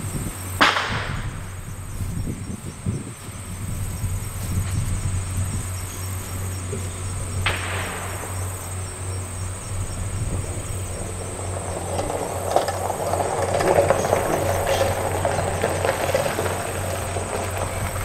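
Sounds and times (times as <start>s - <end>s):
high insect buzz: 0.0s - 12.1s
low hum: 0.0s - 18.0s
distant gunshot echoing: 0.6s - 1.6s, 7.4s - 9.0s.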